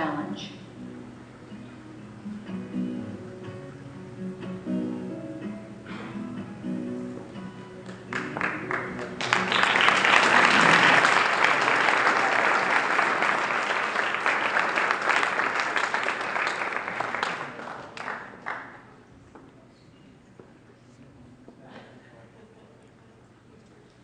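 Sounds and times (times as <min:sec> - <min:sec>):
closing music: 0:00.8 - 0:12.2
audience applauding: 0:07.8 - 0:18.9.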